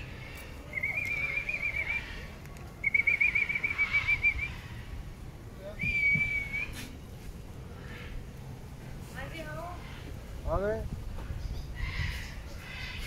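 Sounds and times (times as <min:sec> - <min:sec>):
whistle blasts: 0:02.8 - 0:04.5, 0:05.8 - 0:06.9.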